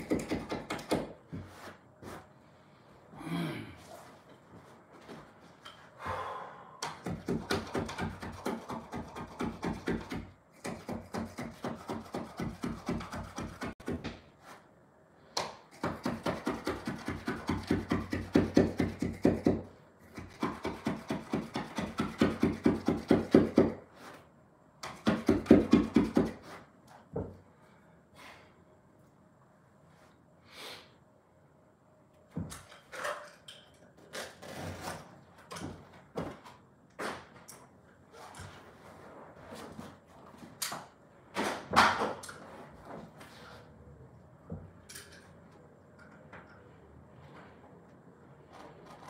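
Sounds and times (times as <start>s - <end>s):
knife scraping carpet: 1.3s - 2.3s.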